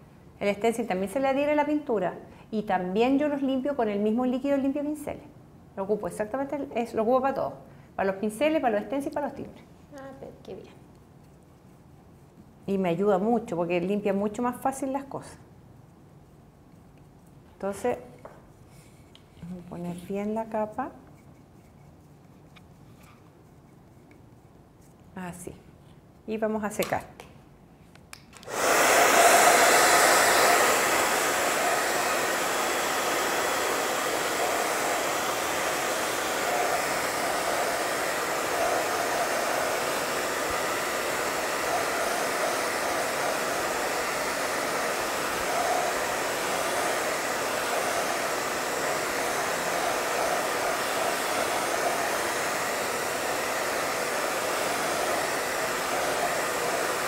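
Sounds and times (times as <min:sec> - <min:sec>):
hair dryer blowing: 0:28.4 - 0:57.0.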